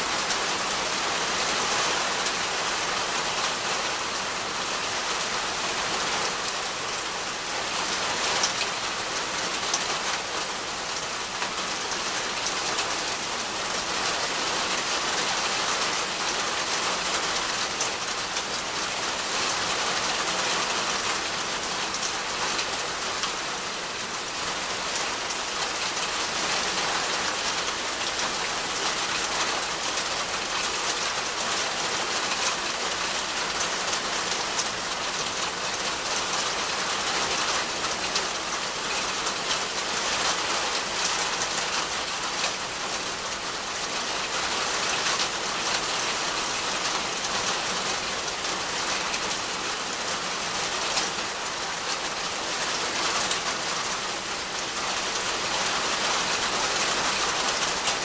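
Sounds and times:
rain hissing on leaves: 0:00.0 - 0:58.0.

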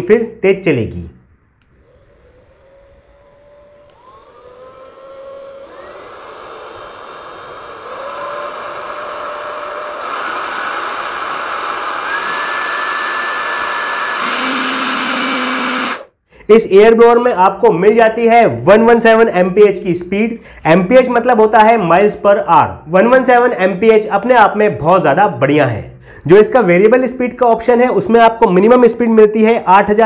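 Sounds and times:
cordless air blower whining: 0:01.6 - 0:16.1.

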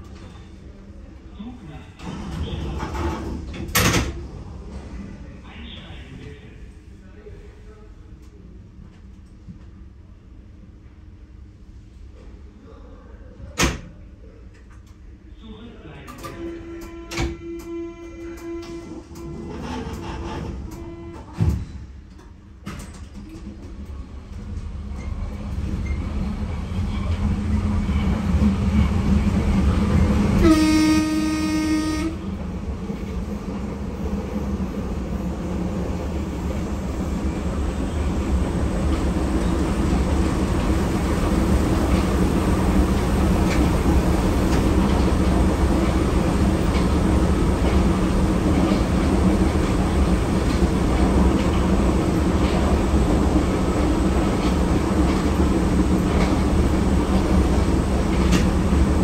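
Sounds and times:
train rumbling: 0:00.0 - 0:12.3, 0:15.9 - 0:59.0
train horn toot: 0:16.3 - 0:19.0, 0:20.8 - 0:21.4, 0:30.4 - 0:32.2.

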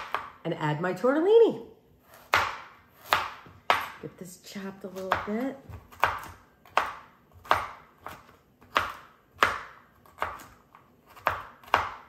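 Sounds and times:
knife chopping on cutting board: 0:00.0 - 0:00.4, 0:02.0 - 0:04.0, 0:04.8 - 0:12.0.

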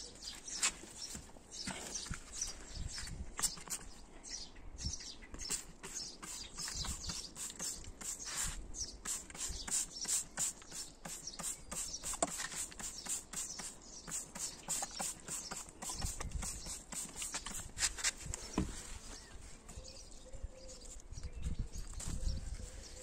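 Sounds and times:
trigger spray gun hissing: 0:05.5 - 0:17.7.

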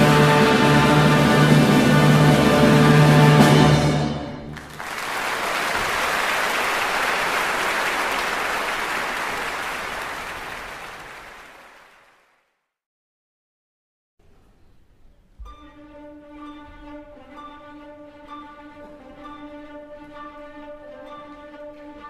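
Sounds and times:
orchestral soundtrack music: 0:00.0 - 0:04.8, 0:15.4 - 0:22.0
applause: 0:04.5 - 0:12.6.

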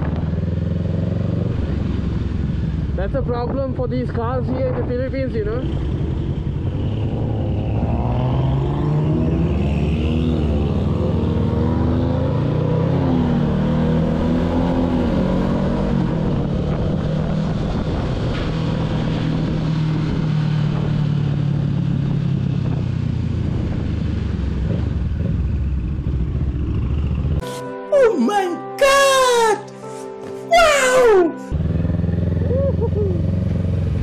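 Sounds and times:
motorcycle engine running: 0:00.0 - 0:07.8, 0:16.3 - 0:27.4, 0:31.5 - 0:34.0
road and wind noise: 0:00.0 - 0:27.5, 0:30.2 - 0:34.0.

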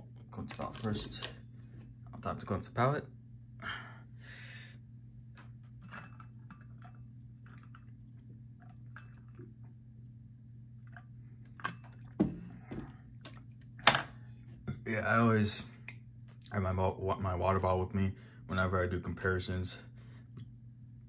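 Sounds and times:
low hum: 0:00.0 - 0:21.0
swallowing and mouth sounds: 0:06.5 - 0:09.8.

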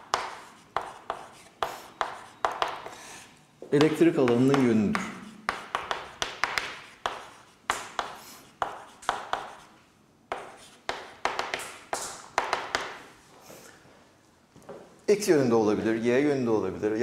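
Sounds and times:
chalk tapping and scraping: 0:00.0 - 0:13.1.

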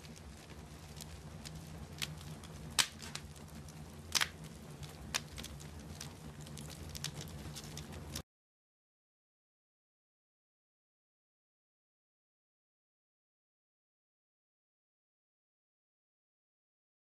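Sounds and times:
burning wood popping: 0:00.0 - 0:08.2
log fire crackling: 0:00.0 - 0:08.2
low steady rumble: 0:00.0 - 0:08.2.

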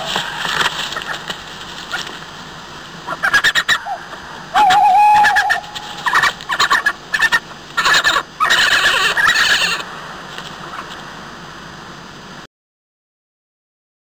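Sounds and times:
faint hiss: 0:00.0 - 0:12.5
badger calls: 0:03.0 - 0:09.8.

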